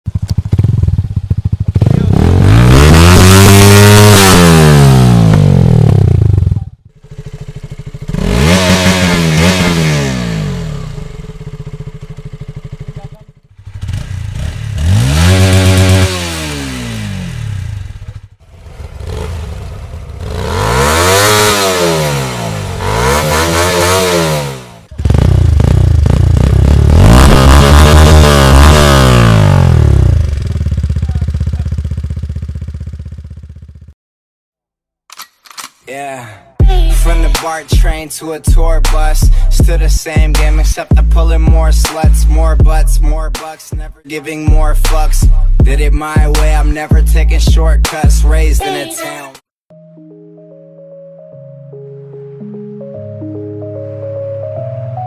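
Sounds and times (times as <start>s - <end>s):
motorcycle engines revving: 0.1s - 33.6s.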